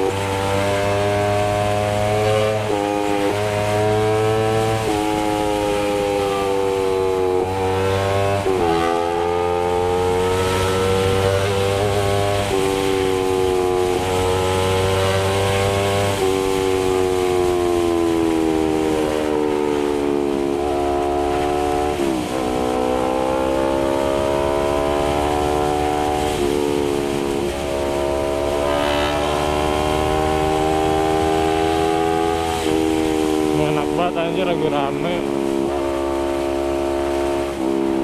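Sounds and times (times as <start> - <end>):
motorcycle engine running: 0.0 - 38.0.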